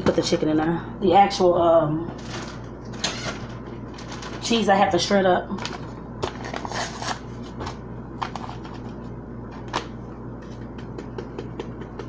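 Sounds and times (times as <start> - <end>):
packet crinkling and rustling: 2.2 - 4.5, 5.6 - 10.6.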